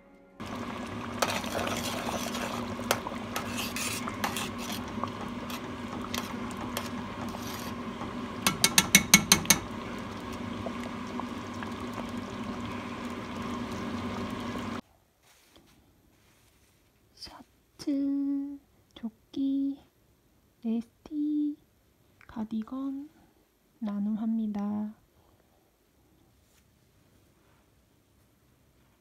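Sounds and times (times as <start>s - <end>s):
porridge simmering in a pot: 0.4s - 14.8s
steady hum: 0.4s - 14.8s.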